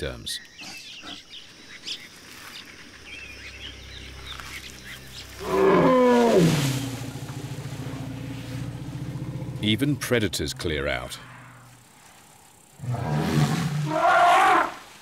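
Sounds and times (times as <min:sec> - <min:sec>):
low pulsing rumble: 0:03.6 - 0:11.9
elephant call: 0:05.3 - 0:09.5, 0:12.8 - 0:14.9.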